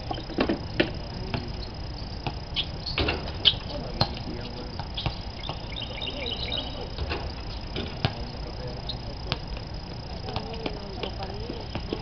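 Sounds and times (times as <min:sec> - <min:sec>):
faint distant voices: 0:00.0 - 0:12.0
high chirps: 0:01.1 - 0:10.1
basketball bouncing: 0:02.2 - 0:02.4, 0:03.0 - 0:04.2, 0:04.8 - 0:05.7, 0:07.7 - 0:08.3, 0:10.2 - 0:12.0.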